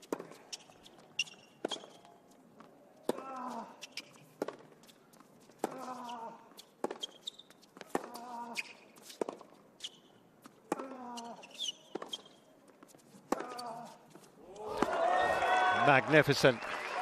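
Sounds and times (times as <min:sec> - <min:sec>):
sneakers squeaking on court: 0:00.0 - 0:14.7
racket hitting tennis ball: 0:04.4 - 0:04.8, 0:05.5 - 0:06.0, 0:06.7 - 0:09.6, 0:13.2 - 0:13.7.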